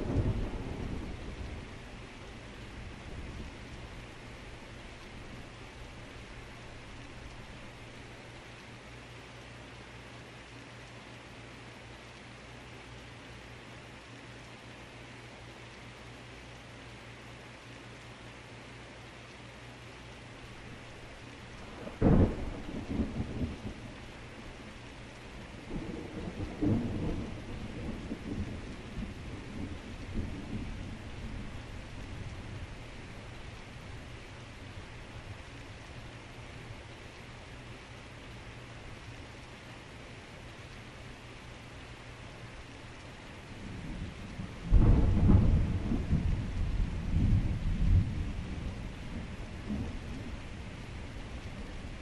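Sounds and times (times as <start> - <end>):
thunder clap and rumbling: 0.0 - 1.8, 20.9 - 35.9, 43.5 - 52.0
heavy rain: 0.0 - 52.0.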